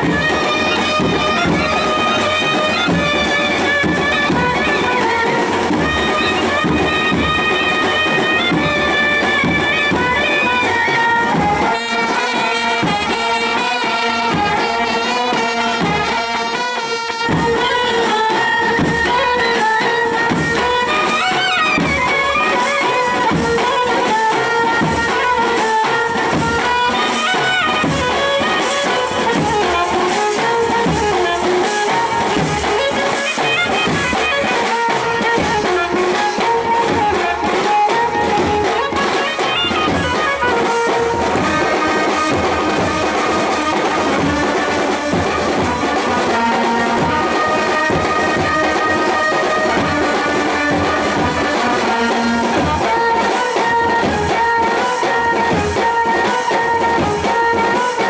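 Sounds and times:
side drums beating: 0.0 - 58.0
brass horns holding a melody: 0.1 - 20.2.

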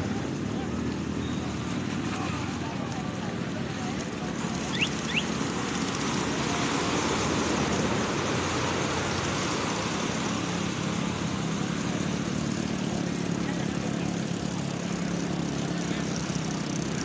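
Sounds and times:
motorboat engine running: 0.0 - 17.0
wind: 0.0 - 17.0
water rushing: 4.2 - 17.0.

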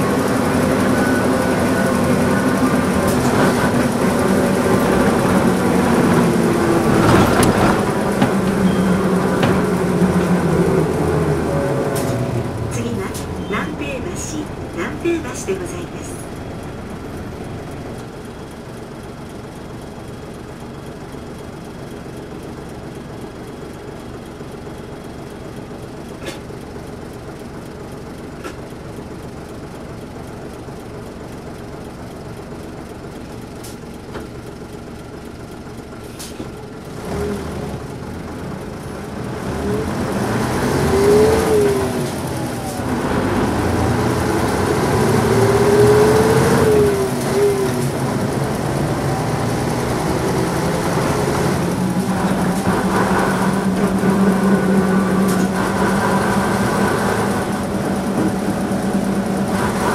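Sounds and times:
bus engine revving: 0.0 - 20.2, 35.4 - 59.9
diesel bus engine idling: 0.0 - 59.9.

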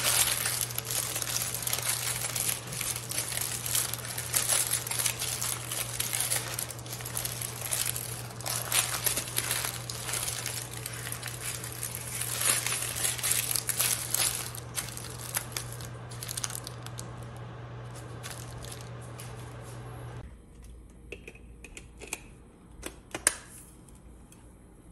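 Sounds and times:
parchment paper crinkling: 0.0 - 19.8.

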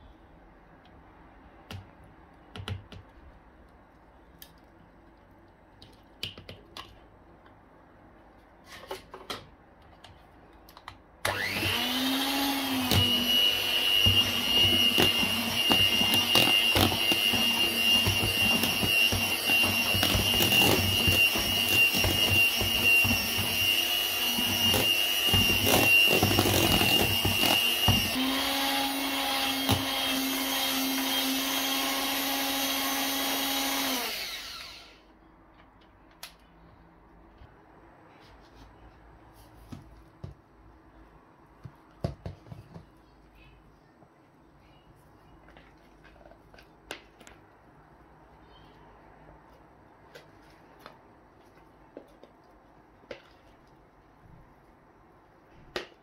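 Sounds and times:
electric hand mixer whirring: 11.2 - 35.1.

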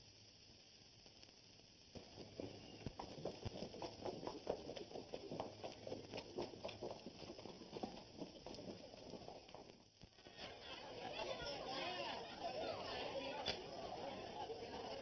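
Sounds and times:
horse hooves clip-clopping on street: 2.2 - 9.7.

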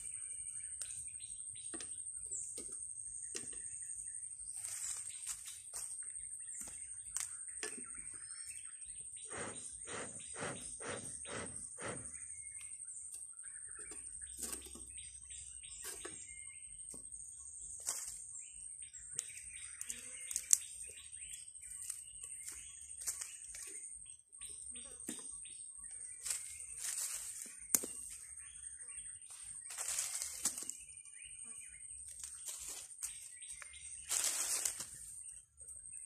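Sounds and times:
bird chirps: 0.0 - 36.0
short scuffing sounds: 29.3 - 30.8.

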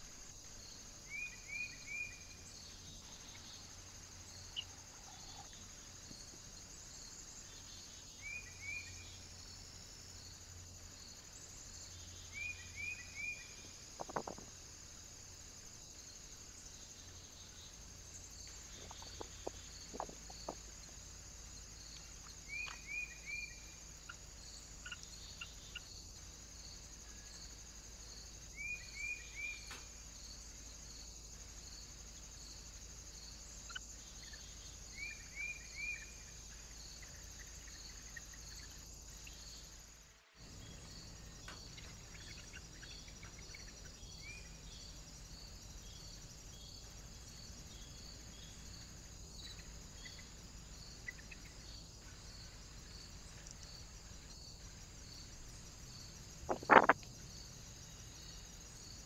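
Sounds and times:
crickets chirping: 0.0 - 59.0
quick bird chirps: 56.5 - 57.0.

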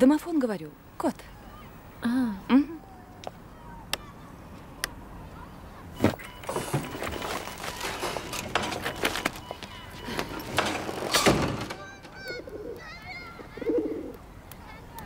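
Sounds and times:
footsteps: 6.0 - 12.2
clicks and rustling: 6.0 - 13.6
heavy door lock clunking open: 10.2 - 12.2.

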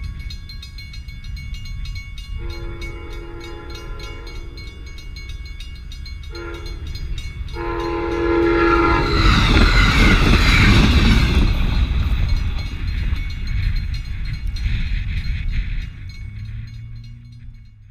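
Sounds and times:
crossing bell ringing: 0.0 - 17.9
train passing with rumbling wheels: 0.0 - 17.9
train horn blasts: 2.4 - 5.0, 6.2 - 9.5.

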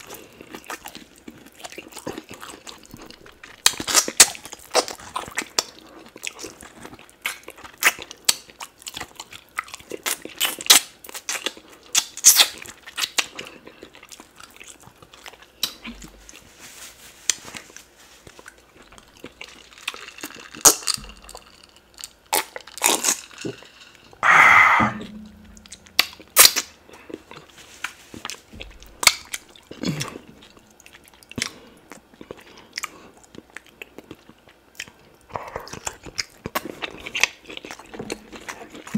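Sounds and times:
wet chewing and lip smacking: 0.0 - 16.4, 25.3 - 38.9
crunching of bone: 18.8 - 23.8
loud breathy noise: 24.2 - 25.1.

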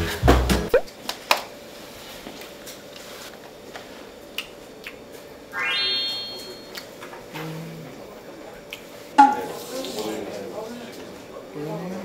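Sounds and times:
bright rising musical sound effect: 5.6 - 6.8.

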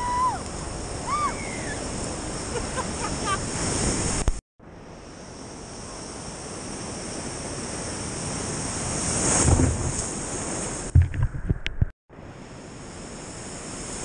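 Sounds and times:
ocean surf washing: 0.0 - 4.4, 5.2 - 11.1
wave breaking: 8.0 - 11.5.

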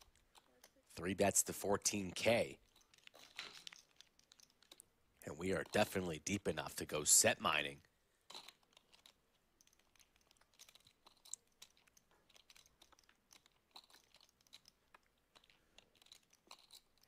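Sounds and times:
poker chips clicking: 0.0 - 0.8, 2.6 - 4.9, 8.3 - 17.0.

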